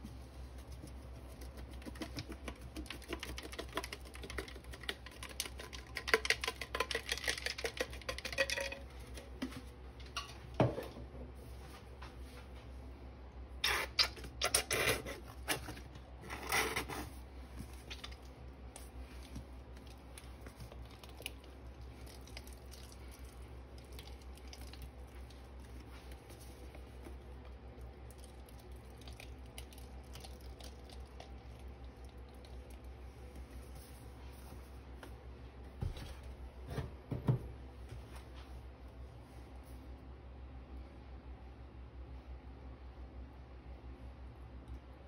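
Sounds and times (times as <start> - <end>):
soft ticks and squishes: 0.0 - 8.3, 17.5 - 35.2.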